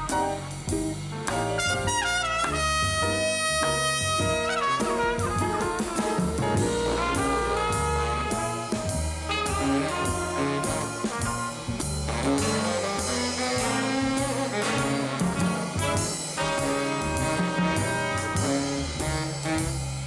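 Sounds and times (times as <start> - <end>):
moving bass line: 0.0 - 20.0
saxophone and brass chords: 0.0 - 20.0.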